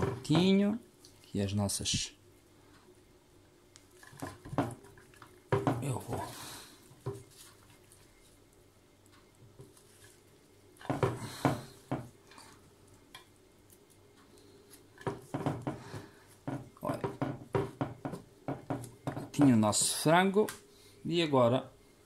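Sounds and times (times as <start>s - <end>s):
knocks and taps on glass: 5.5s - 6.0s, 16.4s - 19.6s.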